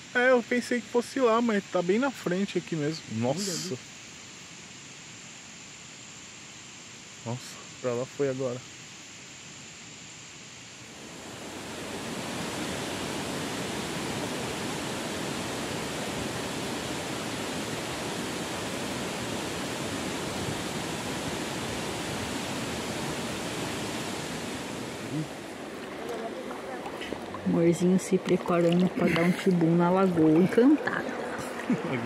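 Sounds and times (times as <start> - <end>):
flowing water rushing: 10.9 - 32.0.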